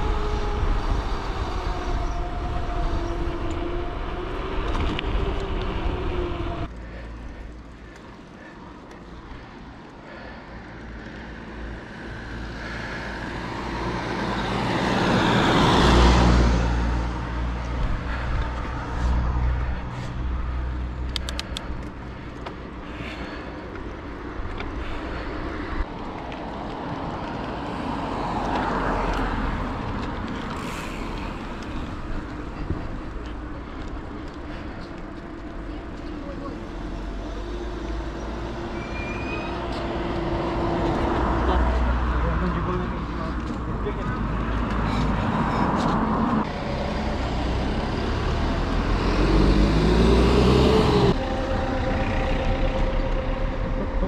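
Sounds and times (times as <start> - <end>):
faint vehicle passing: 0.0 - 54.0
car passing close by: 11.8 - 20.1, 36.8 - 54.0
low rumble: 49.7 - 54.0.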